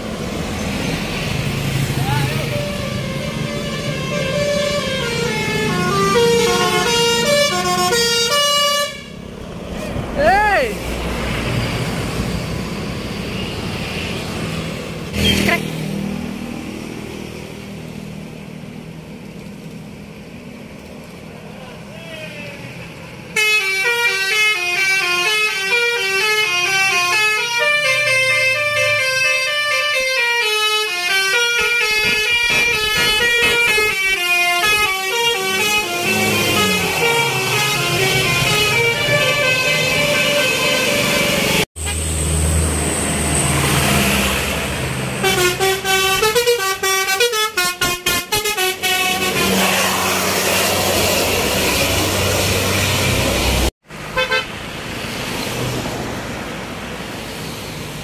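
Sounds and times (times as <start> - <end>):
heavy vehicle engine: 0.0 - 58.0
road noise: 0.0 - 58.0
traffic rumble: 0.0 - 58.0
musical air horn tune: 2.6 - 9.2, 23.4 - 42.1, 45.2 - 50.2, 54.2 - 54.5.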